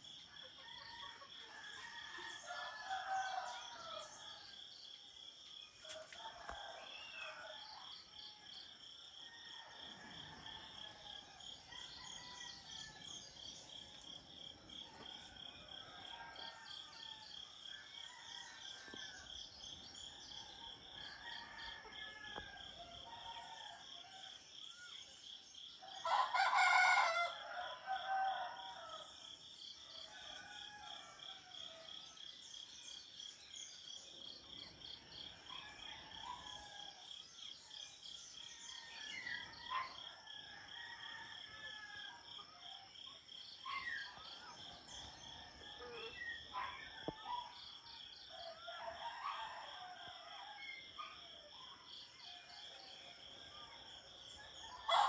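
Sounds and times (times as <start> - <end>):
rooster crowing: 21.0 - 23.9, 26.0 - 29.1, 54.6 - 55.0.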